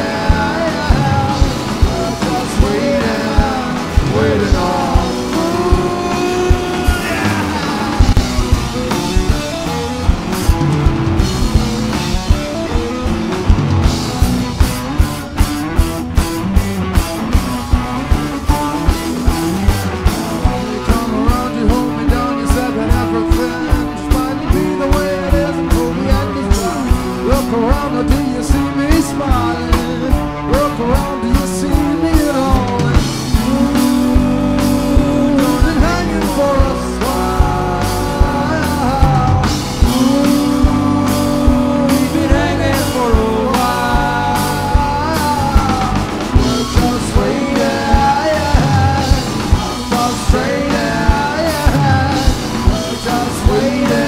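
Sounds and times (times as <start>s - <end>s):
bass guitar: 0.0s - 54.0s
drum kit beat: 0.0s - 54.0s
electric guitar: 0.0s - 54.0s.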